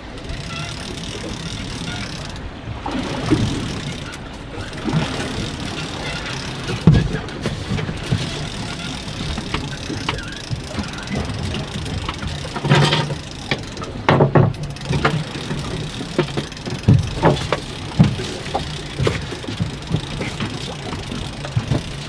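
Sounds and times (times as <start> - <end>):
boat engine idling: 0.0 - 22.0
sharp knocks and thuds: 14.1 - 22.0.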